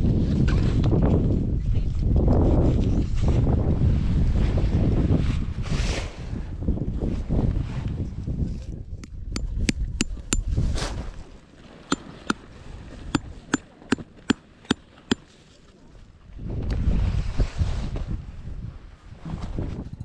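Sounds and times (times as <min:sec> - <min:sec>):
wind buffeting microphone: 0:00.0 - 0:11.3, 0:16.3 - 0:20.0
tent pegs being hammered: 0:09.4 - 0:10.4.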